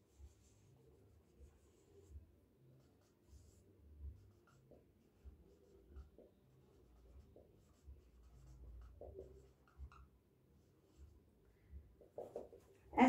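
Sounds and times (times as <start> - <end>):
marker pen squeaking on whiteboard: 4.2 - 10.2, 12.0 - 12.9.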